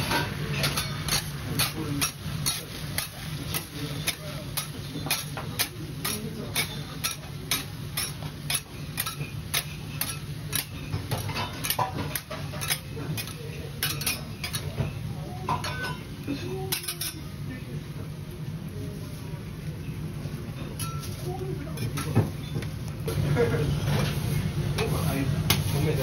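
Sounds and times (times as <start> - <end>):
utensil clinking against a bowl: 0.0 - 16.1, 20.6 - 21.2.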